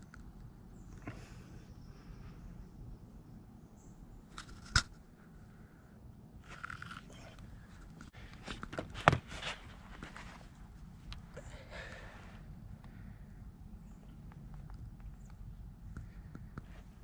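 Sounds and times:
rustling: 0:06.4 - 0:11.3.

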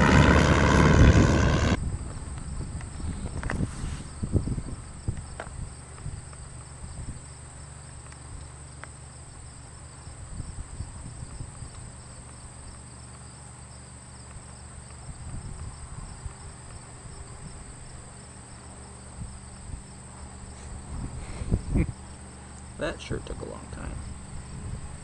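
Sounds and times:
wind buffeting microphone: 0:00.0 - 0:07.2, 0:10.2 - 0:11.9, 0:15.0 - 0:17.8, 0:20.7 - 0:22.0, 0:23.8 - 0:25.0
insect chirping: 0:02.4 - 0:22.9.

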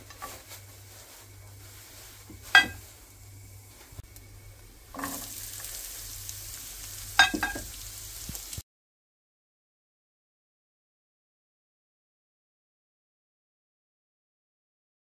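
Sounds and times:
onion sizzling in oil: 0:00.0 - 0:08.6.

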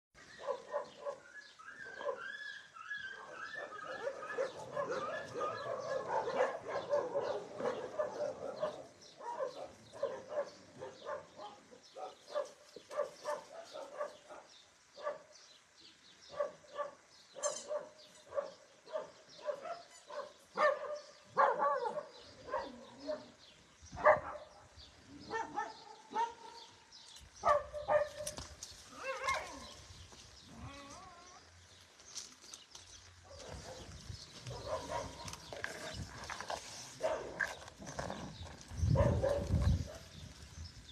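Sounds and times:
dogs barking: 0:00.4 - 0:02.4, 0:03.0 - 0:15.3, 0:16.3 - 0:23.4, 0:24.0 - 0:26.8, 0:27.4 - 0:28.4, 0:29.0 - 0:29.8, 0:33.2 - 0:38.2, 0:38.8 - 0:40.2.

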